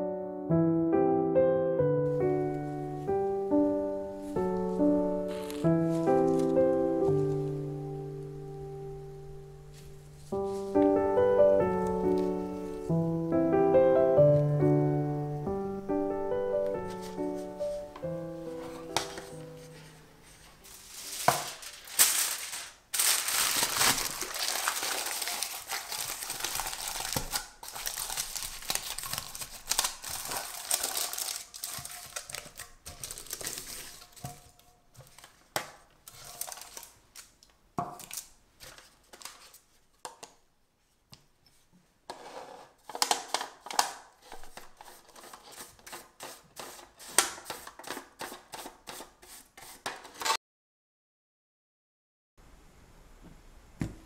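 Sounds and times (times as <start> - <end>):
aluminium foil crinkling: 4.1 - 7.7, 18.6 - 40.0, 42.8 - 48.5.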